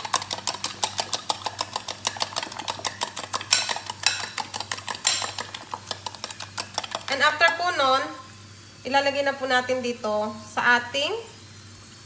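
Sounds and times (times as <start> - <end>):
spoon beating eggs in a bowl: 0.0 - 8.1
spoon scraping bowl: 0.0 - 8.1.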